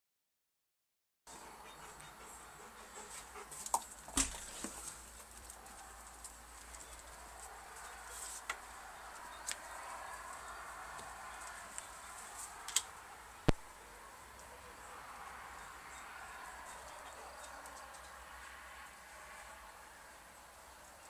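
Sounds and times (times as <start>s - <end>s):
footsteps and paws on concrete: 1.8s - 12.7s.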